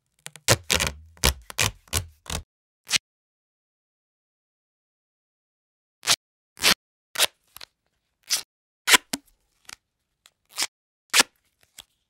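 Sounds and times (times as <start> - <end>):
duct tape ripping: 0.1 - 3.0.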